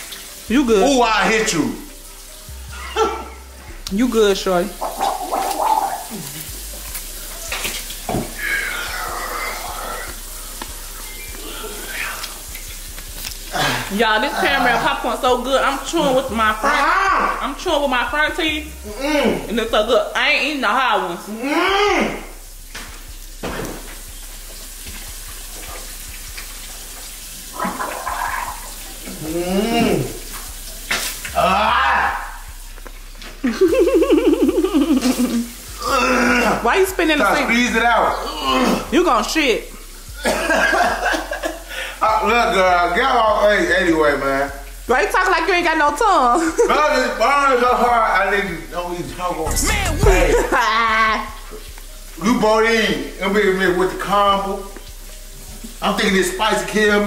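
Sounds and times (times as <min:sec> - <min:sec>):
steady hiss: 0:00.0 - 0:16.6, 0:17.4 - 0:35.9, 0:38.9 - 0:45.0, 0:46.5 - 0:57.0
kitchen tap running: 0:00.0 - 0:57.0
man gargling water: 0:04.8 - 0:06.7, 0:08.2 - 0:10.4, 0:11.4 - 0:12.5, 0:27.5 - 0:30.3, 0:34.2 - 0:36.6, 0:49.5 - 0:51.3
man groaning in pain: 0:13.5 - 0:14.4, 0:18.9 - 0:19.4, 0:29.2 - 0:30.2, 0:31.4 - 0:32.4, 0:35.8 - 0:36.6, 0:49.5 - 0:50.6.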